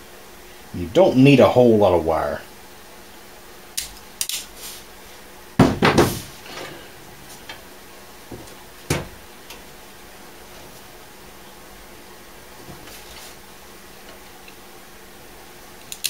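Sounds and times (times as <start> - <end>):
wire strippers clicking and snapping: 3.8 - 4.5, 15.8 - 16.0.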